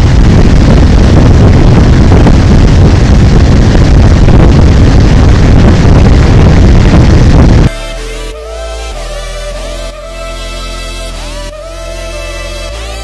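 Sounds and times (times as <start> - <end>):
wind buffeting microphone: 0.0 - 7.7.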